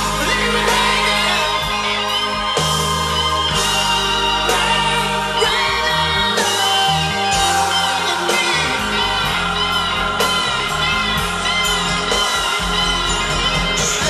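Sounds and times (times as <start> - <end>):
bending electric guitar line: 0.0 - 14.0
pop-rock song through speakers: 0.0 - 14.0.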